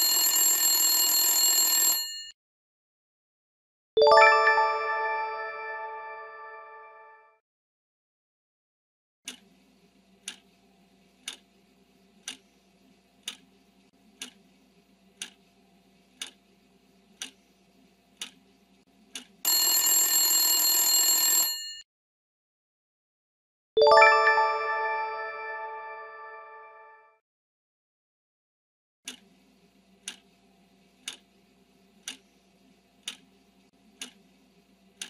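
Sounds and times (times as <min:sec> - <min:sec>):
alarm ringing: 0:00.0 - 0:02.3, 0:19.5 - 0:21.8
bright chime: 0:04.0 - 0:06.9, 0:23.8 - 0:26.7
clock ticking: 0:10.2 - 0:10.5, 0:11.2 - 0:11.4, 0:12.2 - 0:12.4, 0:13.2 - 0:13.5, 0:14.2 - 0:14.4, 0:15.2 - 0:15.4, 0:16.2 - 0:16.4, 0:17.2 - 0:17.4, 0:18.2 - 0:18.4, 0:19.1 - 0:19.4, 0:30.0 - 0:30.2, 0:31.0 - 0:31.3, 0:32.0 - 0:32.2, 0:33.0 - 0:33.3, 0:34.0 - 0:34.2.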